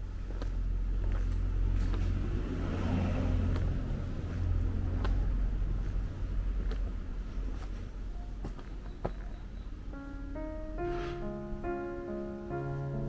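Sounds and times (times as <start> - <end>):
low rumble: 0.0 - 8.0
footsteps on pavement: 0.0 - 9.4.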